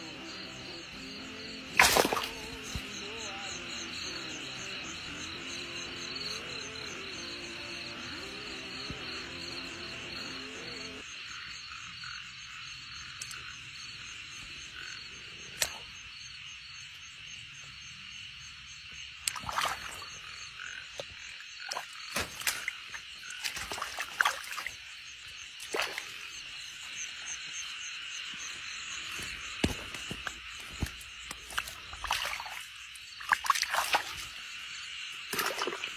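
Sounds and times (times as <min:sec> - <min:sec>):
frogs calling: 0:00.0 - 0:35.9
hand splashing in muddy water: 0:01.7 - 0:02.9, 0:19.2 - 0:20.2, 0:21.0 - 0:24.8, 0:25.6 - 0:26.4, 0:29.0 - 0:34.4, 0:35.3 - 0:35.9.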